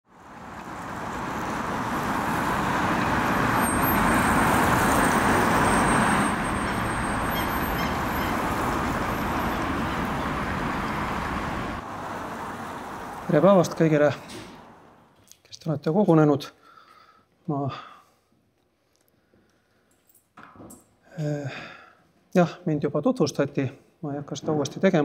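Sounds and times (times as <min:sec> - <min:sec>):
passing cars rushing: 0:00.1 - 0:15.2.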